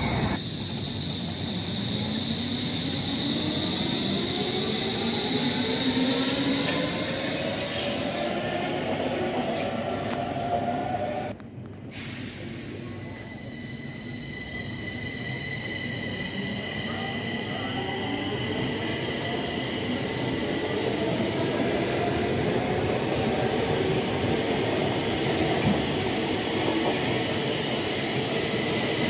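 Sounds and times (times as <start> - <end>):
train rumble: 0.0 - 1.4.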